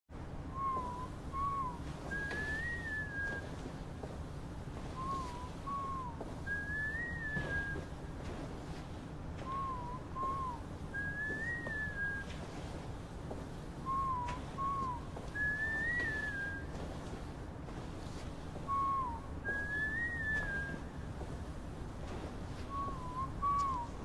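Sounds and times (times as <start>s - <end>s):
person whistling a tune: 0.5s - 3.7s, 4.9s - 8.0s, 9.4s - 12.5s, 13.8s - 16.8s, 18.7s - 21.0s, 22.6s - 24.0s.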